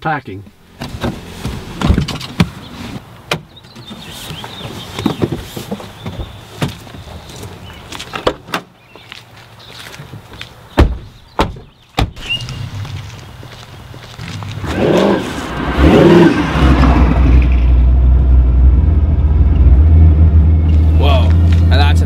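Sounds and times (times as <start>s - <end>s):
car doors opening and shutting: 0.7s - 8.8s, 10.1s - 13.2s
boxes being handled: 3.8s - 8.5s.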